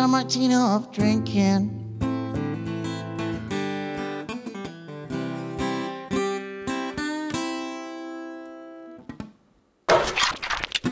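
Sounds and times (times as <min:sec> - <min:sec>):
acoustic guitar strumming: 0:00.0 - 0:09.2.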